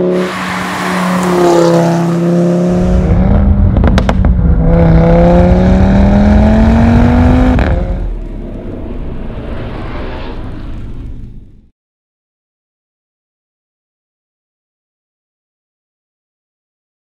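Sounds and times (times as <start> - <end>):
car engine accelerating hard: 0.0 - 11.2
quiet rumbling sound effect: 2.8 - 5.0, 7.9 - 11.7
sharp exhaust pops: 3.7 - 4.4.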